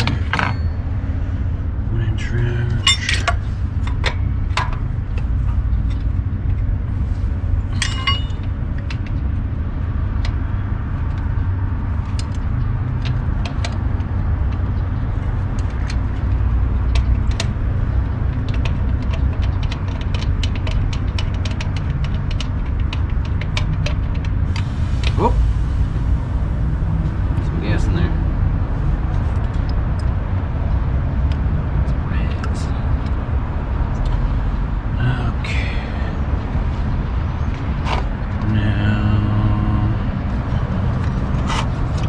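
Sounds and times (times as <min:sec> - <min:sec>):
wrench and fittings clinking: 0:00.0 - 0:00.8, 0:02.8 - 0:04.3, 0:07.7 - 0:08.5
low rumble: 0:24.1 - 0:42.0.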